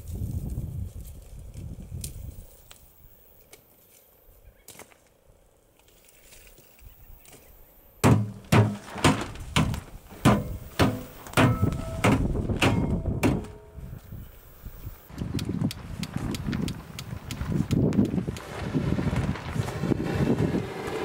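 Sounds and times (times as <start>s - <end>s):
shovel chopping wood: 8.0s - 13.7s.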